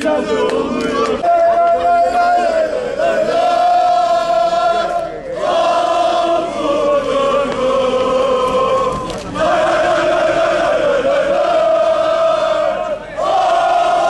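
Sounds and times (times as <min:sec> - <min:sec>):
football fans chanting: 0:00.0 - 0:14.0.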